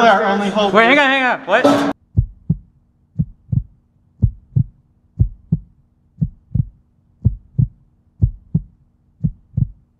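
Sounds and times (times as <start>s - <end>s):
heartbeat thumps: 1.9s - 9.9s
faint steady hum: 2.0s - 9.9s.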